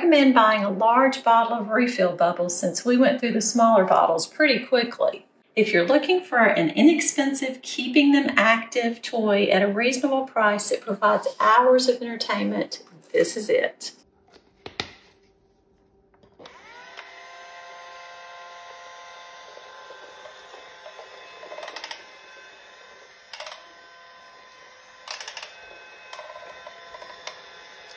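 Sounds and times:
toy fan motor whine: 0:16.4 - 0:27.9.

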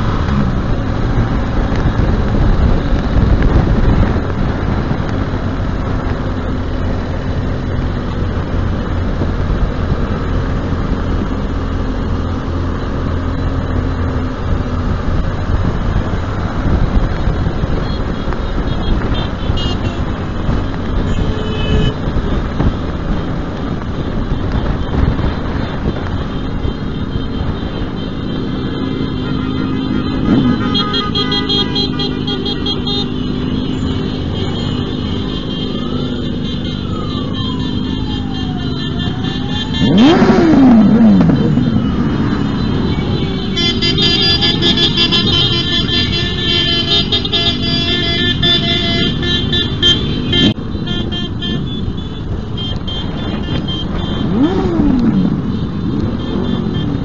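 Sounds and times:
wind rumble on microphone: 0:00.0 - 0:07.9, 0:14.4 - 0:27.9
motorcycle engine running: 0:52.0 - 0:57.0.

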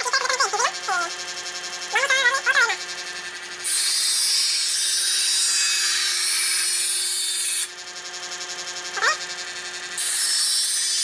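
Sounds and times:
electric motor humming: 0:00.0 - 0:11.0
knife grinding on sharpener: 0:02.8 - 0:07.8, 0:09.0 - 0:11.0.

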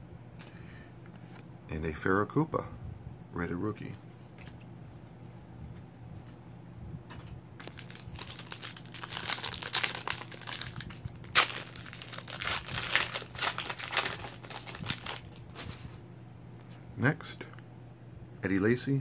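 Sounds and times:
wrapper tearing and crinkling: 0:07.6 - 0:15.8.

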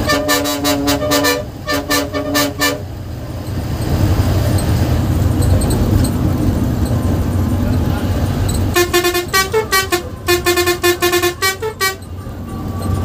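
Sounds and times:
bus horn short blasts: 0:00.0 - 0:02.9, 0:08.7 - 0:12.2
bus engine and road noise: 0:00.0 - 0:13.0.

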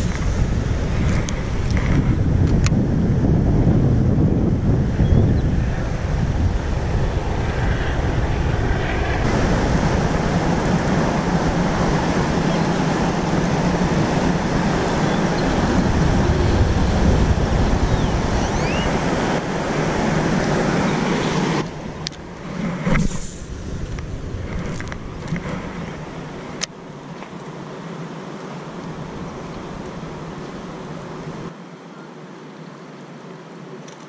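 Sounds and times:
wind buffeting microphone: 0:00.0 - 0:26.8.

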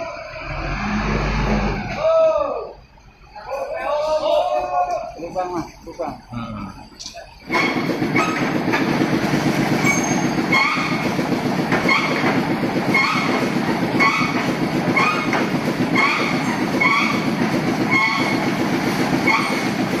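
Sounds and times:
short rising squeak: 0:00.0 - 0:02.0, 0:09.8 - 0:11.1, 0:14.0 - 0:17.3, 0:17.9 - 0:18.5.

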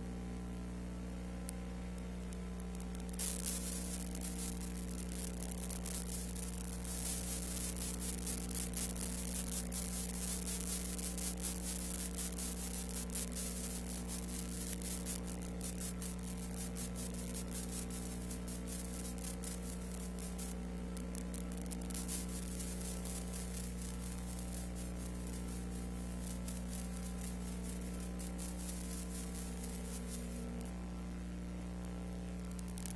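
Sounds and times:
electrical hum with hiss: 0:00.0 - 0:32.9
scattered crackles: 0:00.5 - 0:32.9.

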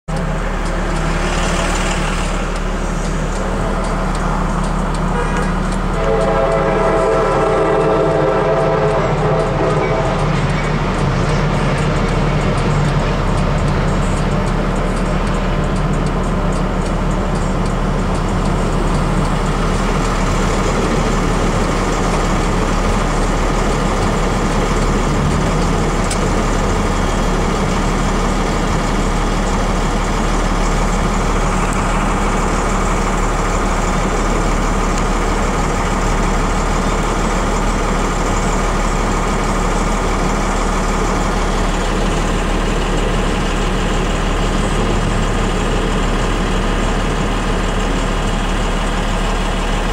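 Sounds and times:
train cars rushing past: 0:00.1 - 0:49.9
freight train horn: 0:05.0 - 0:11.0.

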